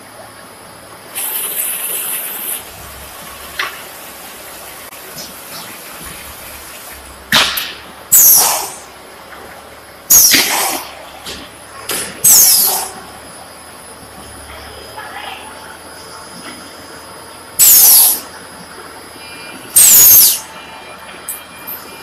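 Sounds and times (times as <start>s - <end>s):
low machinery hum: 0.0s - 22.0s
air hiss bursts: 1.1s - 2.8s, 8.1s - 8.9s, 10.1s - 11.0s, 12.2s - 13.0s, 17.6s - 18.3s, 19.8s - 20.4s.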